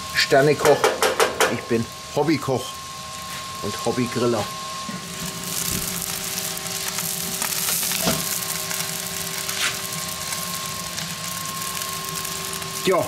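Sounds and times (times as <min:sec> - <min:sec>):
burger patties sizzling on grill: 0:00.0 - 0:13.0
fat crackling pops: 0:05.4 - 0:12.9.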